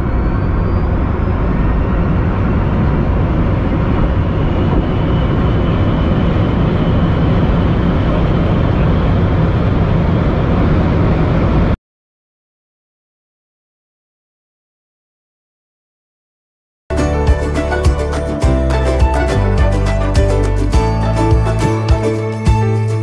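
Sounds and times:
faint high engine whine: 0:00.0 - 0:11.8
road and wind roar: 0:00.0 - 0:11.8.

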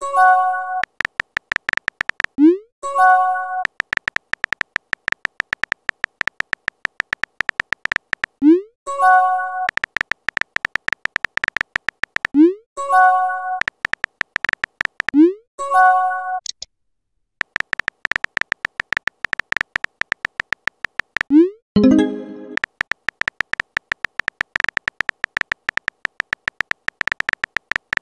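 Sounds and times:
rapid keyboard typing clicks: 0:00.8 - 0:02.6, 0:03.6 - 0:08.5, 0:09.6 - 0:12.6, 0:13.6 - 0:15.3, 0:17.4 - 0:28.0.

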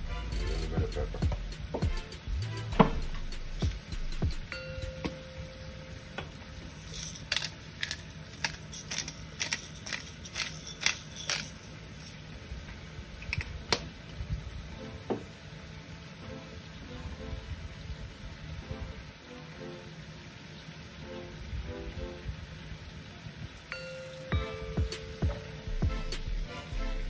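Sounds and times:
pepper grinder clicking: 0:06.9 - 0:11.7.

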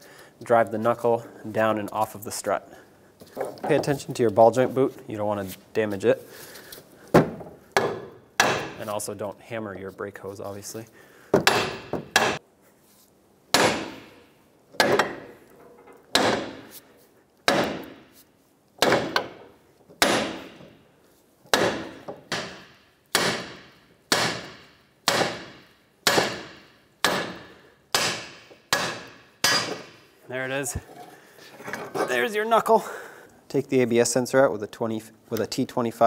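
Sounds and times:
hammer striking metal: 0:07.8 - 0:08.8, 0:11.4 - 0:12.4, 0:13.5 - 0:14.2, 0:21.5 - 0:30.1.

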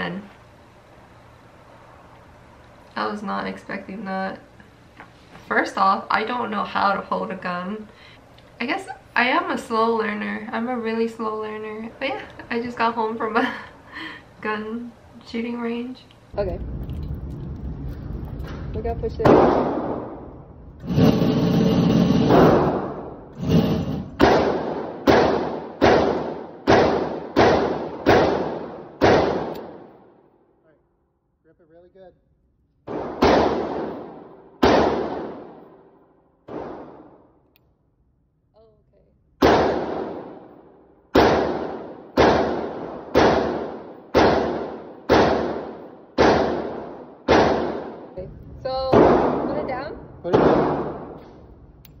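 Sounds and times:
gunshots ringing indoors: 0:20.9 - 0:30.0, 0:32.8 - 0:37.3, 0:39.4 - 0:40.5, 0:41.1 - 0:48.1, 0:50.3 - 0:51.2
pistol shots echoing: 0:24.2 - 0:30.1, 0:32.8 - 0:35.9, 0:36.5 - 0:37.3, 0:39.4 - 0:40.5, 0:41.1 - 0:48.2, 0:48.9 - 0:49.7, 0:50.3 - 0:51.2.

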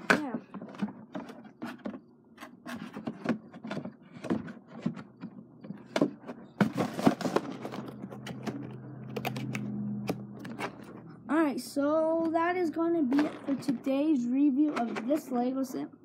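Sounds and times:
packaging rustling: 0:00.6 - 0:09.7
plastic bricks clicking and knocking: 0:13.1 - 0:13.9.

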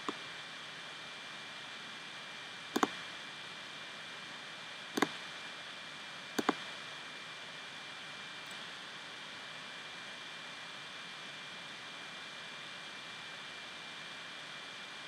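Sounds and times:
computer mouse button clicks: 0:02.8 - 0:03.0, 0:05.0 - 0:05.2, 0:06.4 - 0:06.6.

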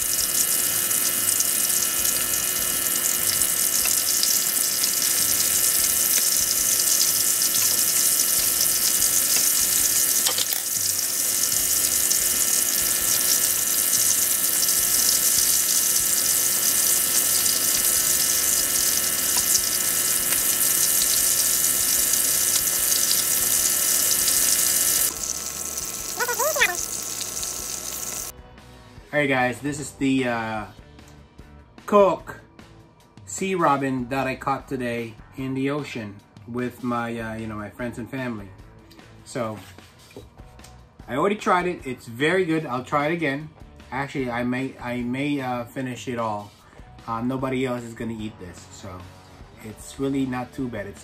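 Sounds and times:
fish frying in hot oil: 0:00.0 - 0:28.3.

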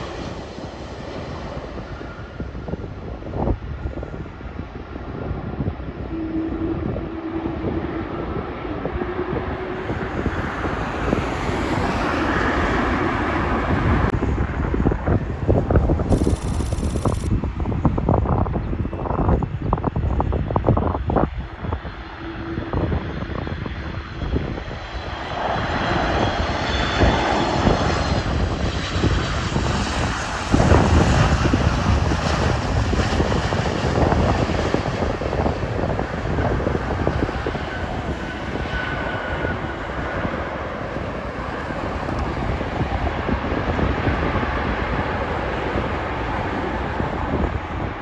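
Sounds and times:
wind buffeting microphone: 0:00.0 - 0:48.0
high engine whine: 0:16.1 - 0:17.3
jet airliner landing: 0:21.0 - 0:48.0.

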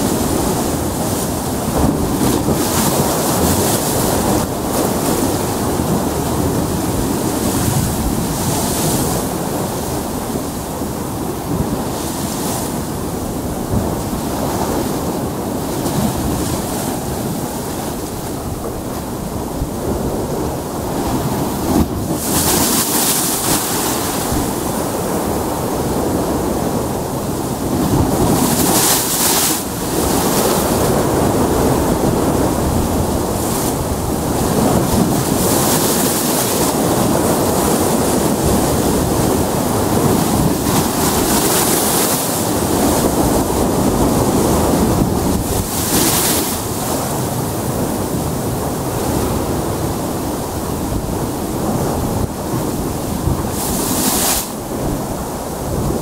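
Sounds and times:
surf breaking on rocks: 0:00.0 - 0:10.6, 0:27.5 - 0:56.0.

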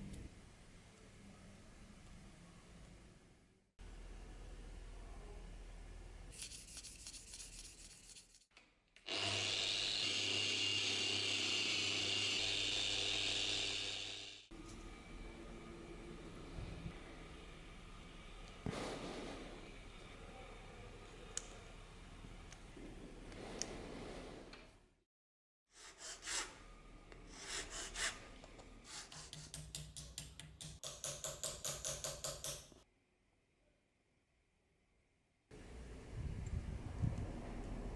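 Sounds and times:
file rasping on metal: 0:28.9 - 0:32.6.

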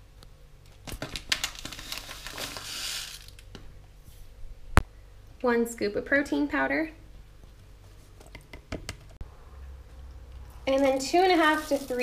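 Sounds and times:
seeds rustling in plastic bowl: 0:01.2 - 0:03.4, 0:10.6 - 0:12.0.

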